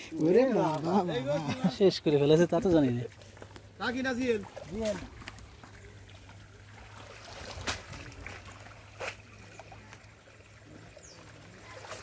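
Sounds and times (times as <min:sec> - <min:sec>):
low steady hum: 0:00.0 - 0:12.0
muddy water splashing: 0:00.0 - 0:12.0
water slaps: 0:03.4 - 0:12.0.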